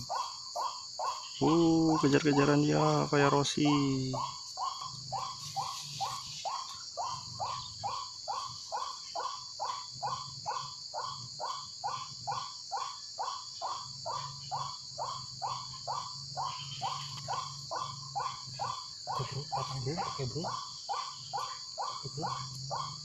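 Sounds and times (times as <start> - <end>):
bird calling harsh notes: 0.0 - 10.2
high insect chorus: 0.0 - 23.0.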